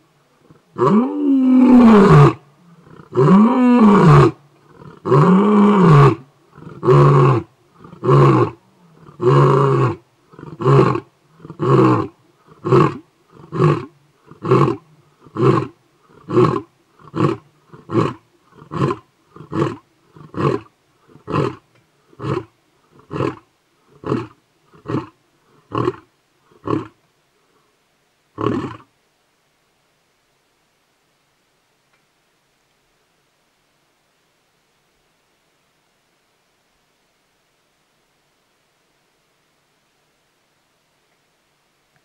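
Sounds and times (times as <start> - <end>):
lion roaring: 0.4 - 21.6, 22.2 - 27.0, 28.4 - 28.9.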